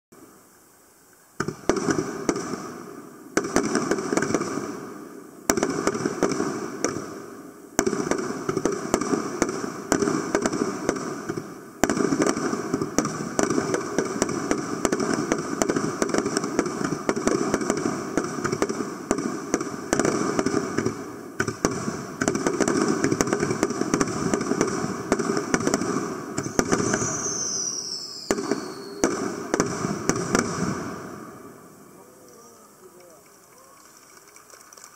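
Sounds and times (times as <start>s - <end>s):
firework crackling: 0.5s - 34.9s
firework bangs: 1.4s - 33.2s
falling whistle: 26.4s - 29.1s.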